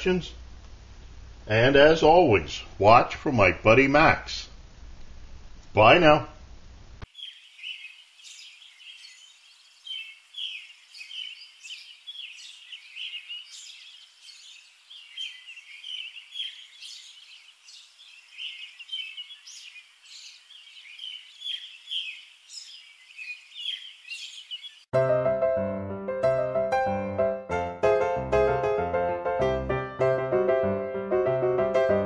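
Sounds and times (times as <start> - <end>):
small birds chirping: 7.0 - 24.9.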